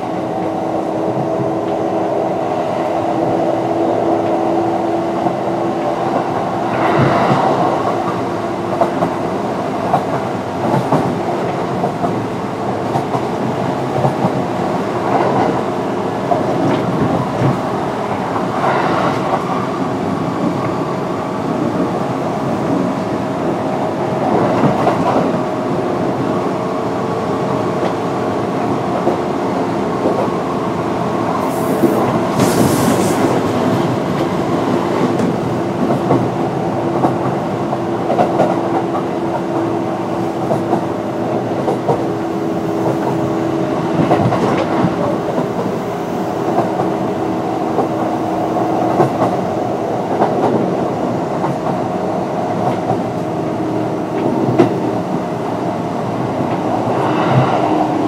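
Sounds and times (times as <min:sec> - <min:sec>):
train running gear rumble: 0:00.0 - 0:58.0
high hiss: 0:31.4 - 0:33.5.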